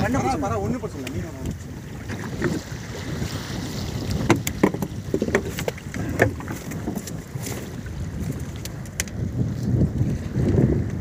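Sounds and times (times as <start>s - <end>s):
fish knocking and slapping on boat: 0.0s - 10.0s
small boat engine rumble: 0.0s - 11.0s
wind buffeting microphone: 0.0s - 11.0s.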